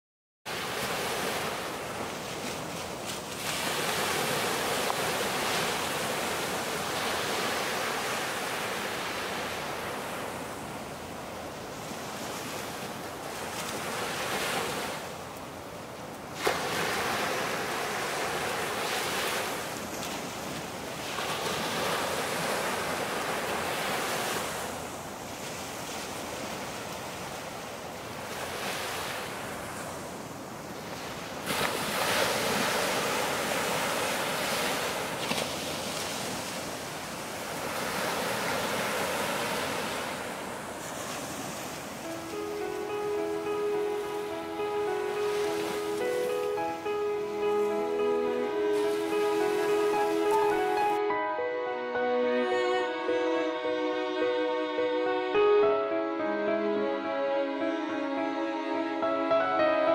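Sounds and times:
surf washing onto beach: 0.5s - 15.3s, 16.2s - 42.5s, 44.9s - 51.0s.

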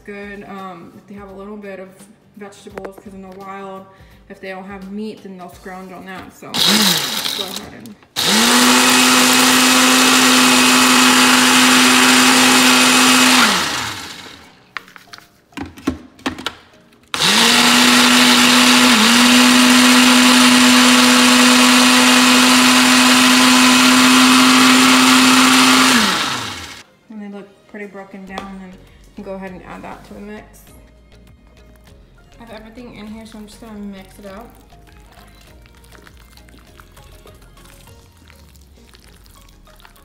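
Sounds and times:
blender motor running: 6.6s - 14.5s, 17.2s - 26.8s.

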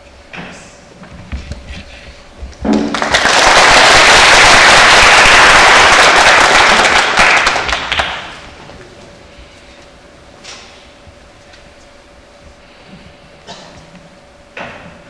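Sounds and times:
audience applauding: 2.8s - 8.6s.

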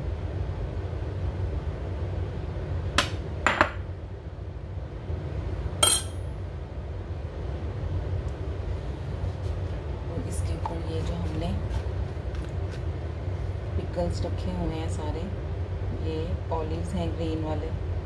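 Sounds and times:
low hum: 0.0s - 18.0s
spoon clinking on glass bowl: 5.8s - 6.2s.

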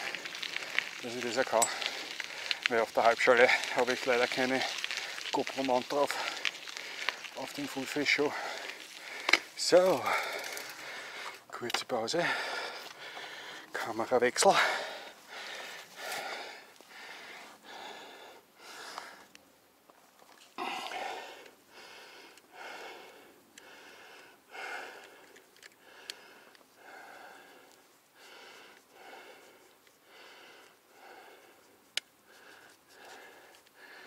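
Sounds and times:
person breathing hard: 1.7s - 2.6s, 6.2s - 7.3s, 8.3s - 11.4s, 12.2s - 13.7s, 14.6s - 19.3s, 20.6s - 34.0s.

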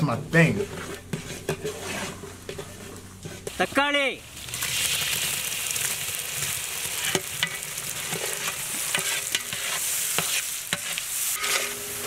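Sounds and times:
metal ladle scraping pot: 0.5s - 3.6s, 7.0s - 11.8s
vegetables sizzling in oil: 3.2s - 12.0s.

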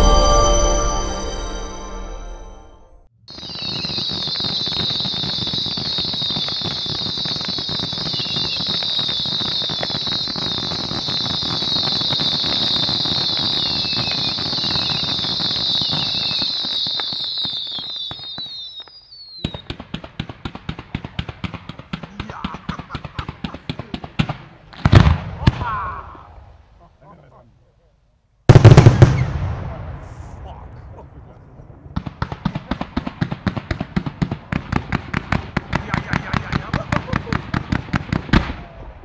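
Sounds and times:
fireworks shrill whistle: 0.0s - 2.7s, 3.3s - 19.8s
fireworks crackling: 3.3s - 26.9s, 28.5s - 39.0s.

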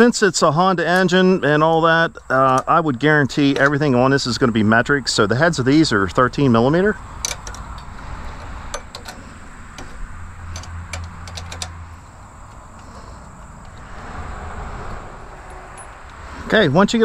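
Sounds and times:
road traffic noise: 0.0s - 17.0s
wrench clicking on bolts: 7.2s - 13.9s.

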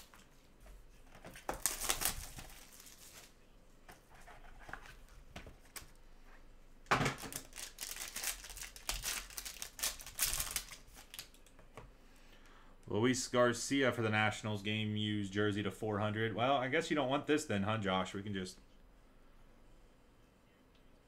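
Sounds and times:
foil wrapper crinkling: 1.4s - 3.3s, 7.2s - 11.4s
foil wrapper tearing: 1.5s - 3.3s, 7.2s - 11.4s.

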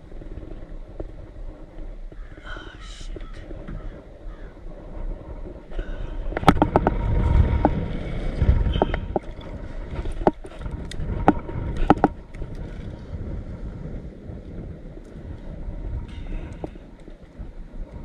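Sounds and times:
low rumble: 0.0s - 18.0s
sharp clicks and knocks: 6.3s - 7.8s, 8.6s - 12.6s.

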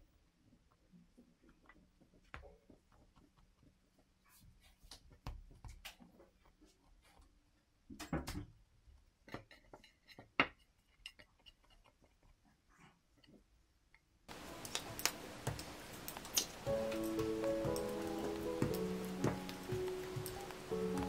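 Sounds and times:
soft music: 14.3s - 21.0s.

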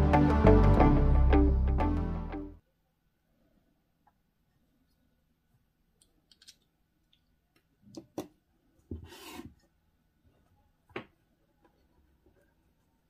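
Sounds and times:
loudspeaker scraping on tabletop: 8.9s - 9.6s.

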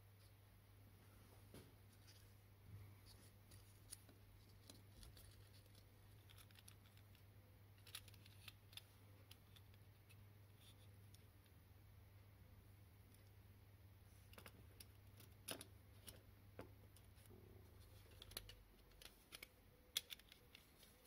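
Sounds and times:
low steady hum: 0.0s - 21.0s
metal toy clicks and taps: 18.1s - 20.7s.

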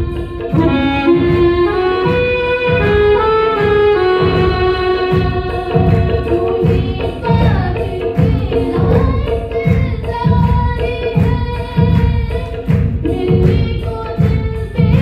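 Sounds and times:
electronic keyboard accompaniment: 0.0s - 10.5s
woman singing into microphone: 5.1s - 15.0s.

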